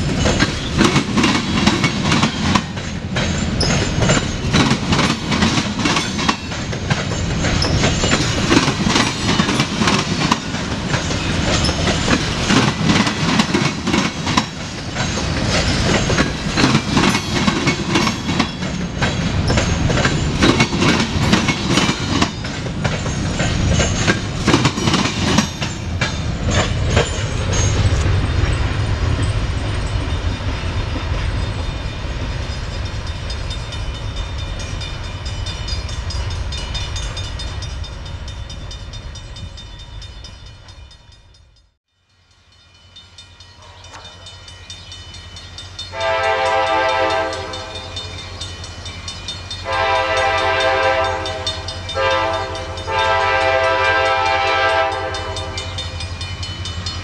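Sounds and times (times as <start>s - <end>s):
train wheels clicking over rail joints: 0.0s - 39.0s
freight train rolling past: 0.0s - 57.0s
locomotive horn blasts: 43.6s - 44.3s, 45.9s - 47.9s, 49.6s - 55.8s.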